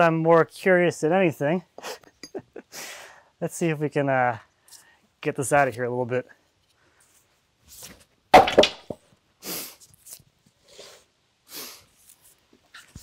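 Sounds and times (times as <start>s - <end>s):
tool chopping into log: 8.4s - 9.0s.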